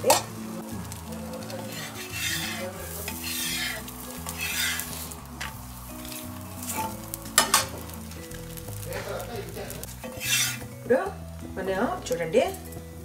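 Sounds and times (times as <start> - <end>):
metal spatula scraping a pan: 0.0 - 8.0, 9.7 - 10.8
spatula clanking on a pan: 0.0 - 8.0, 9.7 - 10.7
quiet background music: 0.0 - 13.0.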